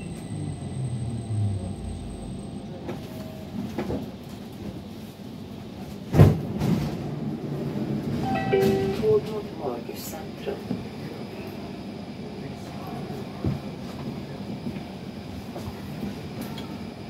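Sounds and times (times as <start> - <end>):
metro train motor hum: 0.0 - 17.0.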